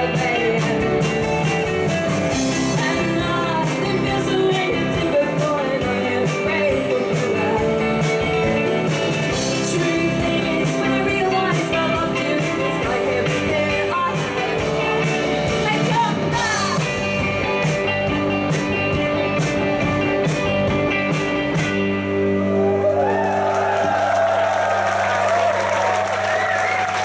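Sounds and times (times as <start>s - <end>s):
woman singing: 0.0s - 1.4s, 2.4s - 8.3s, 9.4s - 17.0s
drums with hi-hat beat: 0.0s - 22.2s
guitar: 0.0s - 27.0s
crowd cheering: 22.2s - 27.0s.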